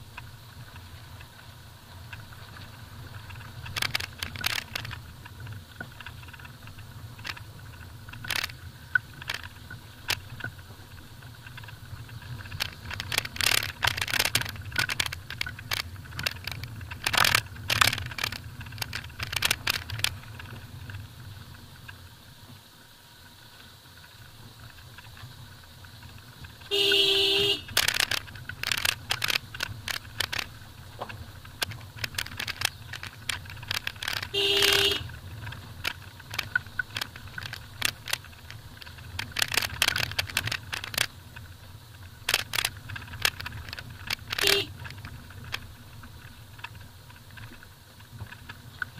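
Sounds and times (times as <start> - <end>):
stones clicking and rattling: 0.0 - 21.0, 24.6 - 48.9
car engine hum: 0.0 - 48.9
car horn honking: 26.7 - 27.8, 34.3 - 35.1, 44.4 - 44.8.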